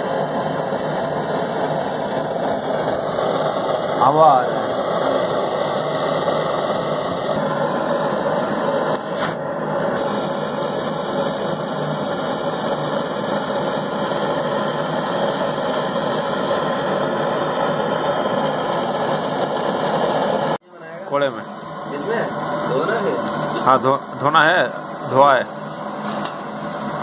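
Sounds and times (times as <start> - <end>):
hiss: 0.0 - 20.6
machine-like hum: 0.0 - 27.0.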